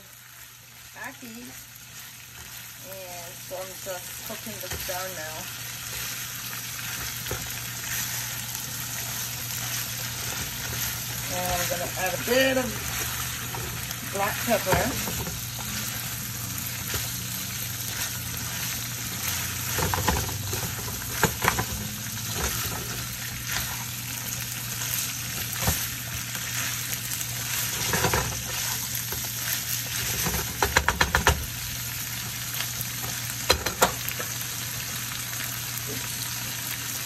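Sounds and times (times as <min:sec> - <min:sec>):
food sizzling in oil: 0:00.0 - 0:37.0
spoon scraping and knocking pan: 0:17.9 - 0:23.9, 0:27.5 - 0:31.5, 0:33.4 - 0:34.3.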